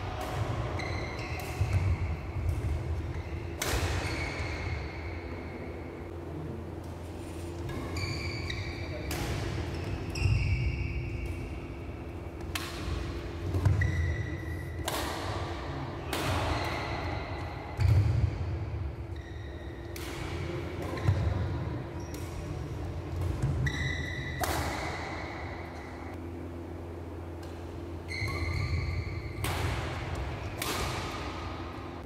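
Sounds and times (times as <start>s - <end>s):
racket hitting shuttlecock: 0.0s - 5.4s, 7.6s - 18.9s, 19.8s - 22.5s, 23.1s - 26.0s, 27.4s - 32.0s
steady low hum: 0.0s - 32.0s
shoes squeaking on court: 7.1s - 12.0s, 13.3s - 14.7s, 19.0s - 19.9s, 23.4s - 26.1s, 28.0s - 29.4s.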